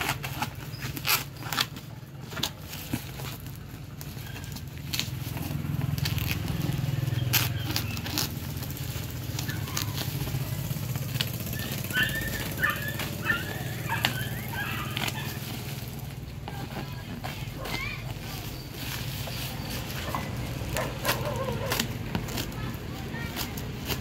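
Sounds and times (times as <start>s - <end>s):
plastic wrap rustling: 0.0s - 24.0s
scissors snipping: 4.4s - 18.6s, 20.1s - 24.0s.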